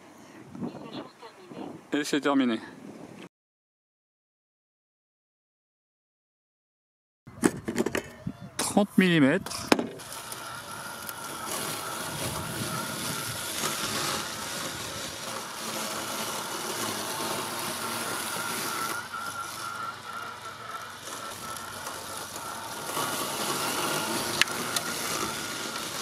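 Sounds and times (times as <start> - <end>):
robot mower motor whine: 9.4 - 26.0
blade rushing through grass: 9.6 - 26.0.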